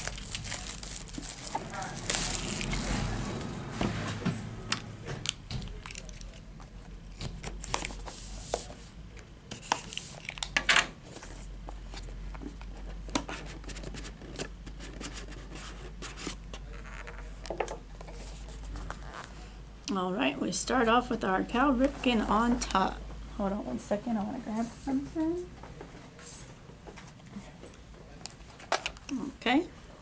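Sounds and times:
cardboard box rustling: 0.0s - 3.2s.

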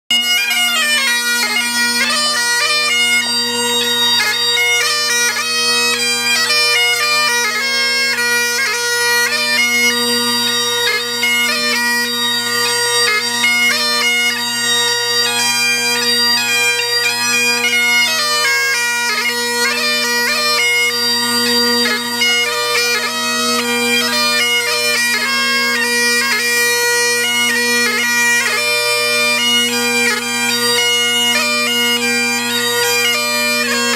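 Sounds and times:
bagpipe playing a march: 0.1s - 33.9s.

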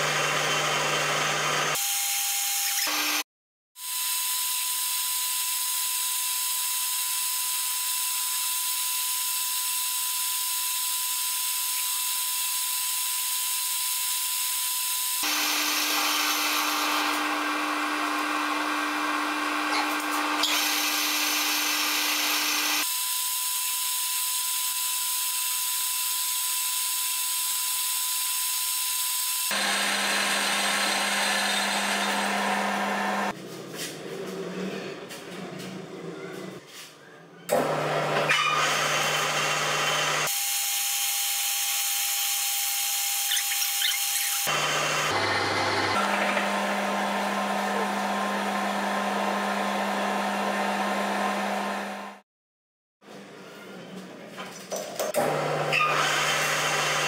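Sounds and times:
metal lathe whining: 29.5s - 33.3s.

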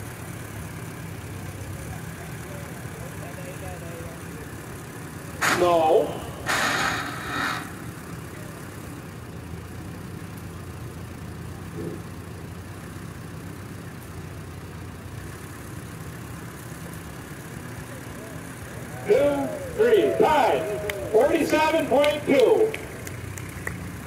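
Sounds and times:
tractor engine idling: 0.0s - 24.0s
loud noisy burst: 5.4s - 7.9s.

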